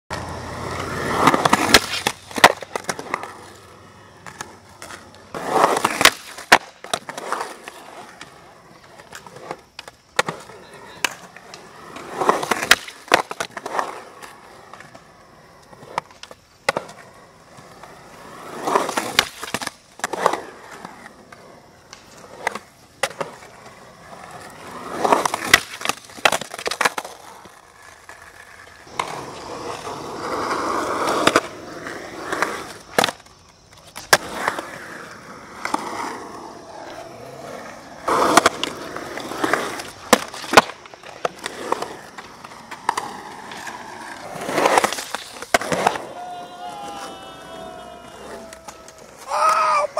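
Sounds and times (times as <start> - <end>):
skateboard clacks: 0.1 - 49.9
skateboard wheels rolling on concrete: 0.1 - 49.9.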